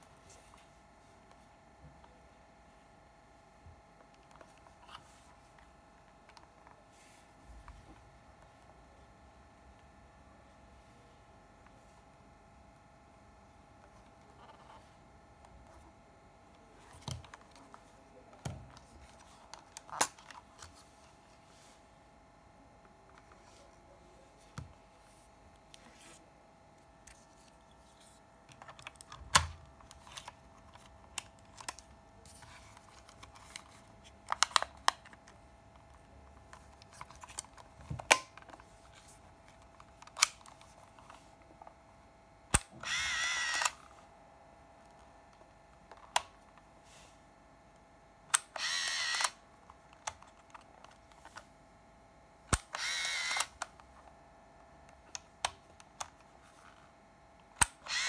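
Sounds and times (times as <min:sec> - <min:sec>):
plastic camera clicks: 0:28.5 - 0:35.2, 0:39.8 - 0:41.1, 0:42.5 - 0:43.8, 0:48.3 - 0:51.4, 0:52.5 - 0:53.7, 0:57.6 - 0:58.0
camera shutter release: 0:42.5 - 0:43.8, 0:48.3 - 0:49.4, 0:52.5 - 0:53.6, 0:57.6 - 0:58.0
motorized film advance whirring: 0:42.6 - 0:43.8, 0:48.3 - 0:49.4, 0:52.5 - 0:53.6, 0:57.6 - 0:58.0.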